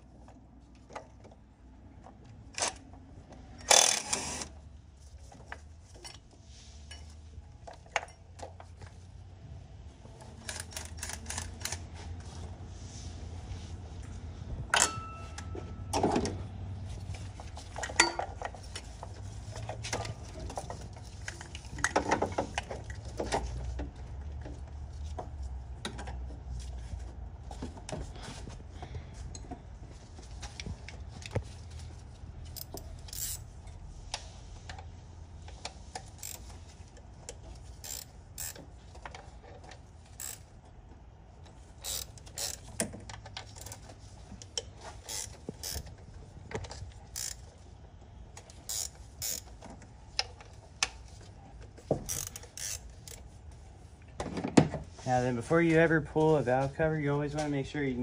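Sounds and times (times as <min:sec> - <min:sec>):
socket ratchet clicking: 0:32.6 - 0:33.4, 0:36.2 - 0:36.5, 0:37.8 - 0:38.7, 0:41.8 - 0:42.7, 0:45.1 - 0:45.9, 0:47.1 - 0:47.4, 0:48.4 - 0:49.6, 0:52.0 - 0:53.2.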